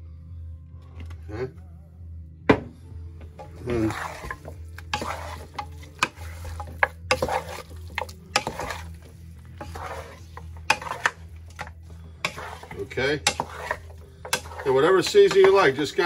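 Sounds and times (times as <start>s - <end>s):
raw meat squelching: 3.5s - 15.9s
spatula knocking against pan: 10.7s - 15.8s.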